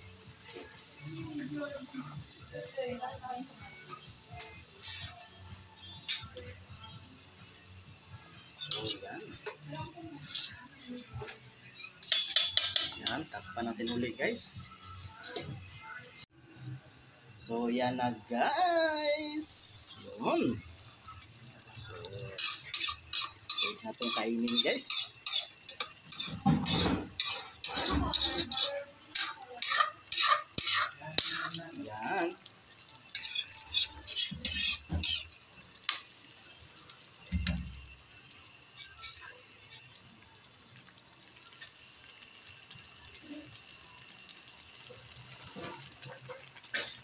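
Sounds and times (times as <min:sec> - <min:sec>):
stew simmering: 0:00.0 - 0:47.0
metal ladle scraping pan: 0:08.5 - 0:14.6, 0:21.8 - 0:31.7, 0:33.0 - 0:36.0.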